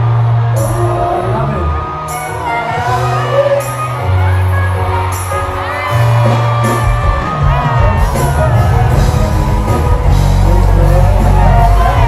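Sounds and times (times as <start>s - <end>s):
crowd cheering: 0.0s - 12.0s
electric bass notes: 0.0s - 12.0s
live band music: 0.0s - 12.0s
person singing: 7.4s - 12.0s.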